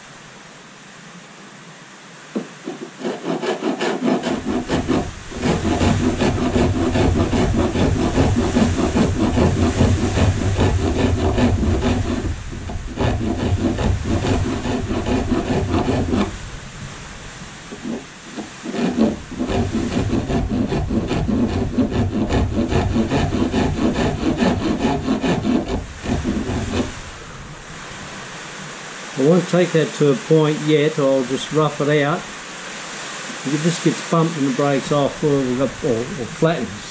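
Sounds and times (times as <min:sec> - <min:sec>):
hand rasp filing wood: 0:02.6 - 0:16.4, 0:17.7 - 0:27.1.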